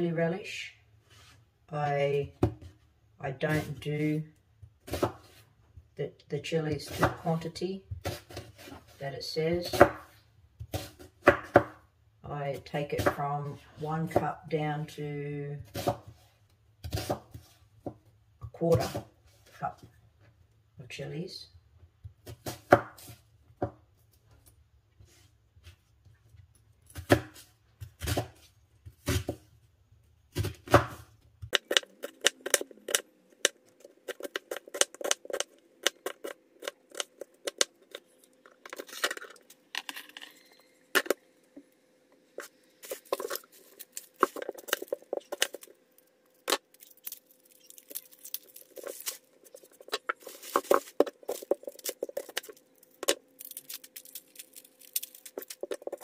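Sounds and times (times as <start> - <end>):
knife chopping on cutting board: 16.8 - 18.0.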